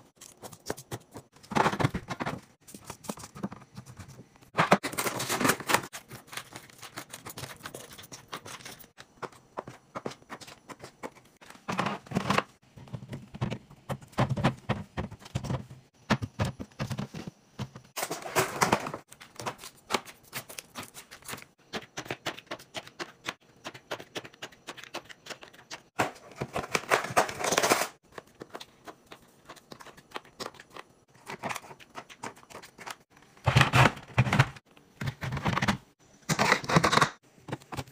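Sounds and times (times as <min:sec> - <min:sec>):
items clicking and tapping: 0:00.0 - 0:37.9
packaging rustling: 0:00.2 - 0:09.2.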